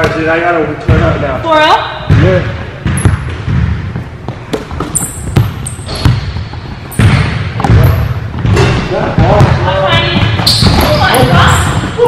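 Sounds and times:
basketball bouncing on hardwood floor: 2.1s - 12.0s
sneakers squeaking on court: 2.8s - 12.0s.

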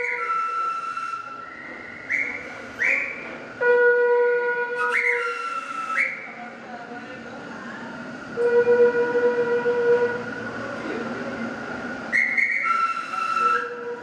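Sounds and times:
short rising whistles: 0.0s - 3.3s, 4.8s - 6.3s, 12.1s - 13.7s
high whistling tones: 0.0s - 3.4s, 4.7s - 6.4s, 12.0s - 14.0s
train pulling into station: 0.0s - 14.0s.

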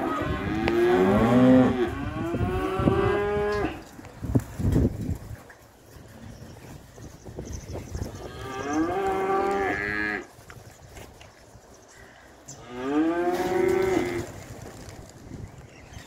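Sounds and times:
cattle mooing: 8.3s - 10.3s.

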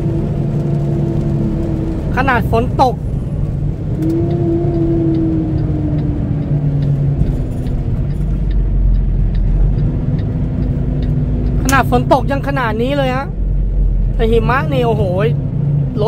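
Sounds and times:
tyre noise on wet road: 0.0s - 12.7s
diesel engine rumble: 0.0s - 16.0s
steady tone dropping in pitch: 3.0s - 12.4s.

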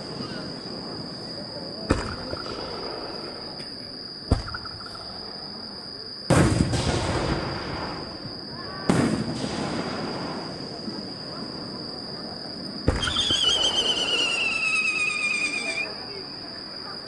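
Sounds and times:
firework shells bursting: 1.9s - 3.3s, 12.8s - 15.6s.

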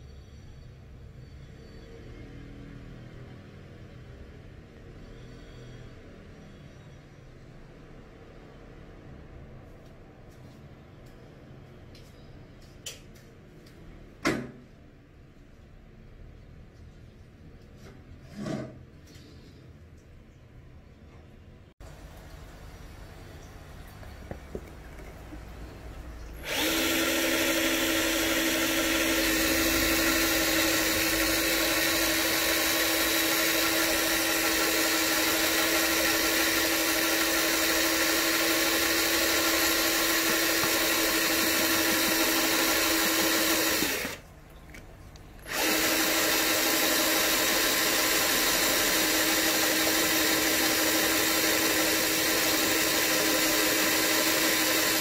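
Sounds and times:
electric drill with hole saw: 26.4s - 44.2s, 45.4s - 55.0s.

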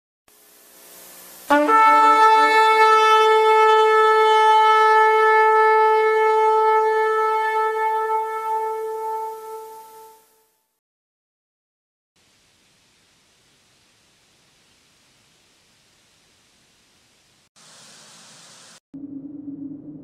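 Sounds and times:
horn-like wind instrument blast: 1.5s - 10.8s.

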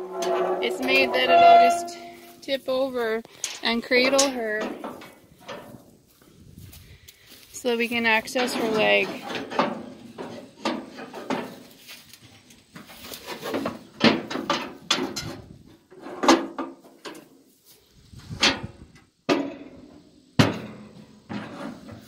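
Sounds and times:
metal cattle crate clanking: 0.0s - 2.9s, 3.5s - 5.8s, 8.2s - 11.6s, 13.3s - 17.2s, 20.4s - 22.0s.

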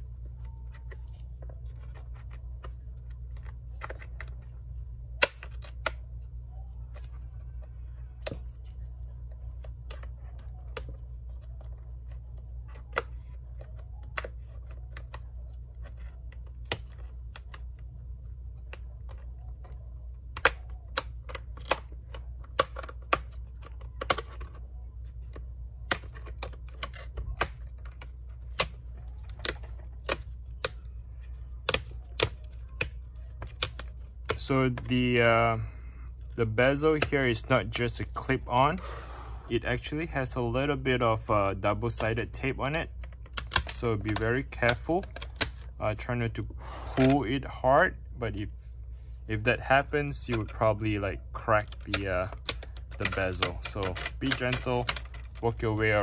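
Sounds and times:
steady low hum: 0.0s - 56.0s
plastic clicks and snaps: 42.7s - 45.7s.

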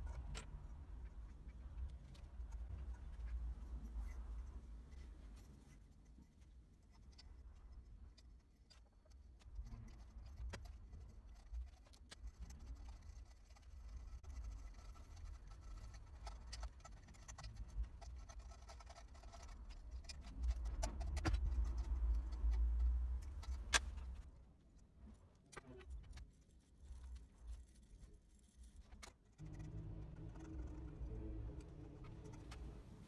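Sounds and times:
low rumble: 29.4s - 33.0s.

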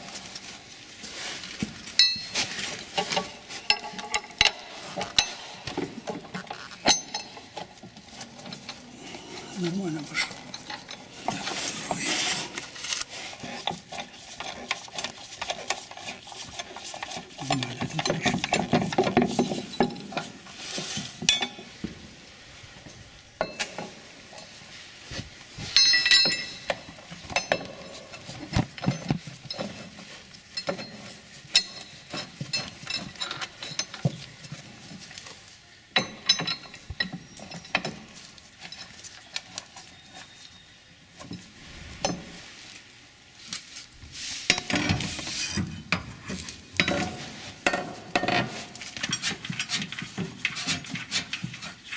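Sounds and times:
metal hardware clinking: 2.0s - 8.9s, 25.8s - 29.8s, 36.0s - 39.0s.

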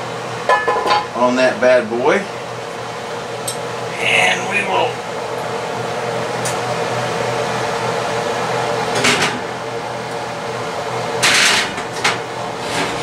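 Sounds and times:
steady hum: 0.0s - 13.0s
metal scraping: 12.6s - 13.0s.

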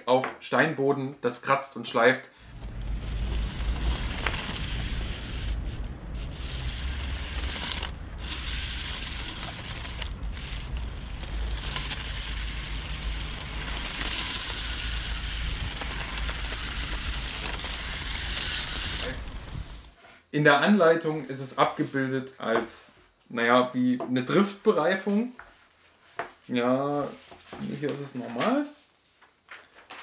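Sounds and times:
toy car wheels grinding on stone: 2.6s - 19.9s.

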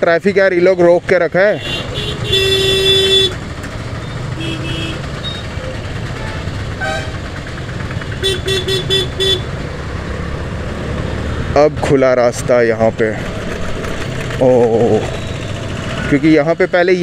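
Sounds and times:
traffic engine and tyre rumble: 0.0s - 17.0s
car horns honking: 1.4s - 7.4s, 8.1s - 9.6s.

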